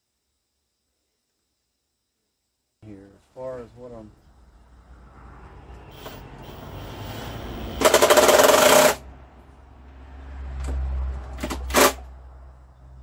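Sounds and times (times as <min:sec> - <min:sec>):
power drill rattling: 0:06.0 - 0:09.0.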